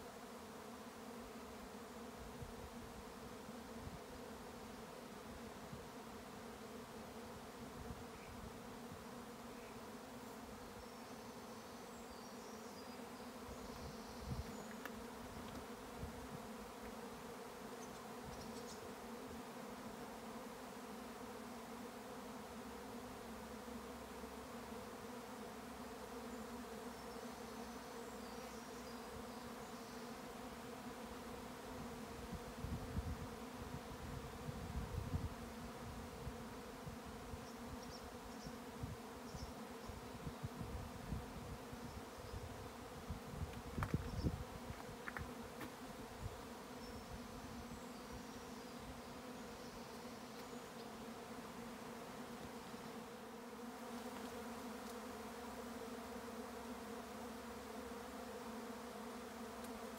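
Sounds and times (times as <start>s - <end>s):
bee swarm humming: 0.0s - 59.9s
wind buffets on microphone: 34.0s - 35.4s, 42.3s - 45.0s.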